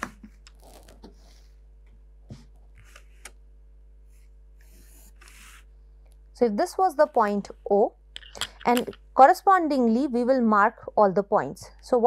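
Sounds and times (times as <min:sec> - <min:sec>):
pencil scratching on paper: 0:04.6 - 0:05.7.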